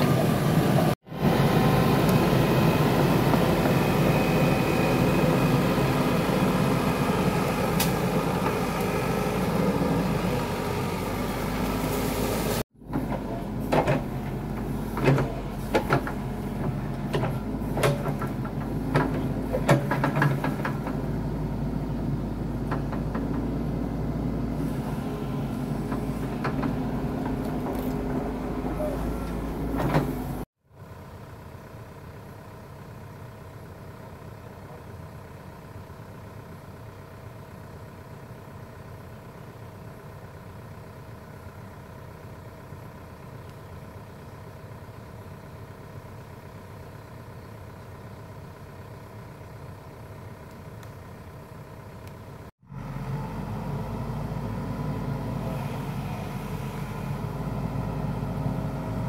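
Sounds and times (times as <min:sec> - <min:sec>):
excavator diesel engine running: 0:00.0 - 0:59.0
excavator bucket clanks and knocks: 0:12.9 - 0:21.1.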